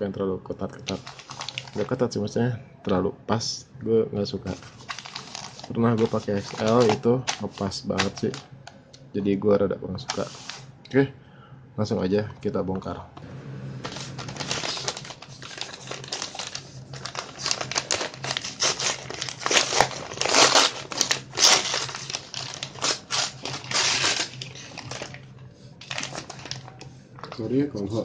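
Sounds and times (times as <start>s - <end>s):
envelope and plastic bag crumpling: 0.8s - 2.0s, 4.5s - 8.5s, 10.0s - 10.7s, 13.8s - 27.6s.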